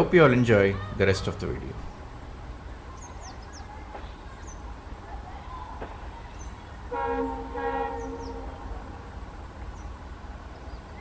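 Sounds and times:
high bird chirps: 0:02.9 - 0:03.7, 0:07.9 - 0:08.6
train horn: 0:06.9 - 0:08.9.

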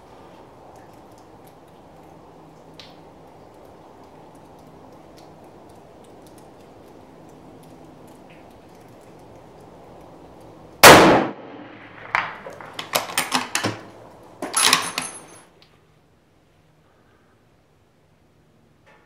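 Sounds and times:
rifle shot: 0:10.8 - 0:12.7
rifle bolt clicking and clanking: 0:12.0 - 0:15.4
ringing metal clinks: 0:14.5 - 0:15.5.

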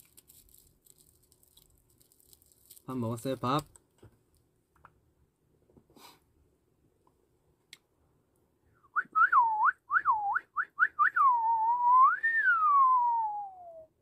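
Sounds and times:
man whistling a tune: 0:08.8 - 0:14.0.

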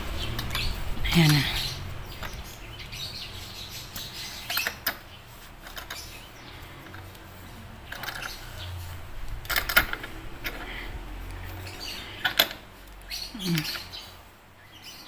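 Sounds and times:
voice humming: 0:00.9 - 0:01.9, 0:13.3 - 0:13.9
plastic clicks and rattles: 0:07.9 - 0:08.4, 0:09.2 - 0:10.7.

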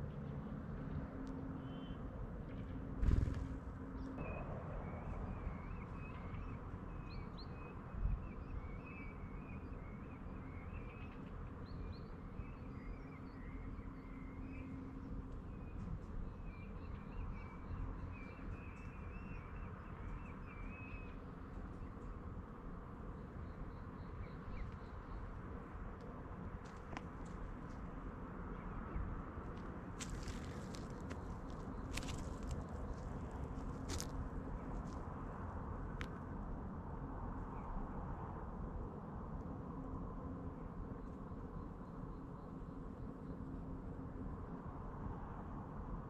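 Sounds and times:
low background rumble: 0:00.0 - 0:46.0
songbirds twittering: 0:01.5 - 0:36.2.

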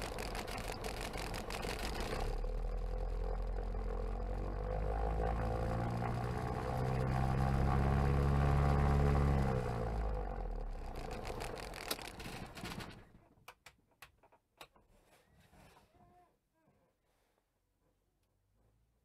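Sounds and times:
propeller engine idling and stopping: 0:00.0 - 0:13.0.

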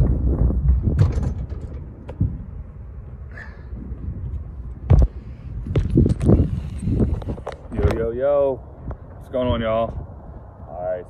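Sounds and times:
metal hatch rattling and creaking: 0:00.4 - 0:02.3
loud thump: 0:00.6 - 0:02.4.

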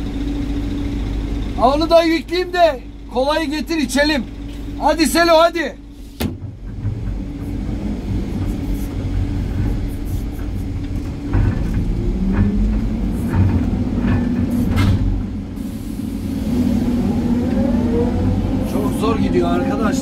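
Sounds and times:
dump truck engine labouring: 0:00.0 - 0:20.0
excavator diesel engine and hydraulics: 0:00.0 - 0:20.0
sharp clicks and knocks: 0:06.2 - 0:15.4.

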